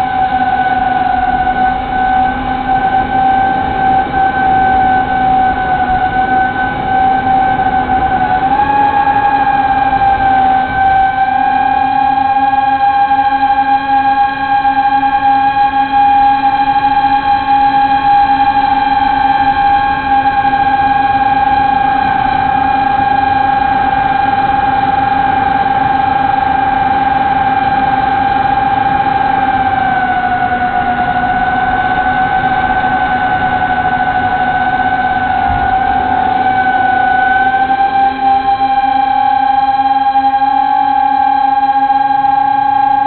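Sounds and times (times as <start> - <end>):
drone propellers whining: 0.0 - 43.0.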